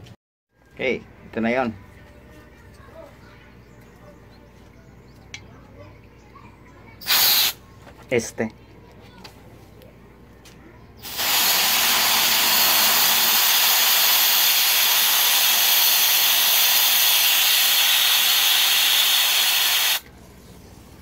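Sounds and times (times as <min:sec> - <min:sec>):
gas canister hissing: 0:07.0 - 0:07.6, 0:11.0 - 0:20.0.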